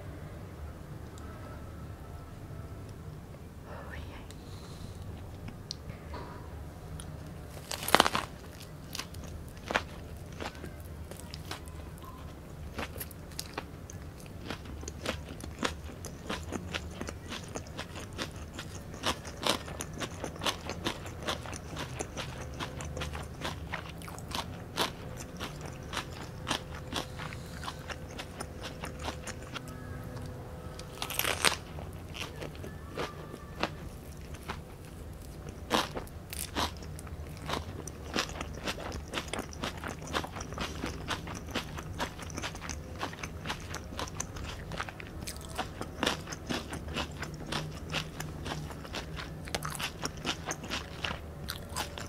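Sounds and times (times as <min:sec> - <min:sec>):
crunchy chewing: 0:06.9 - 0:52.0.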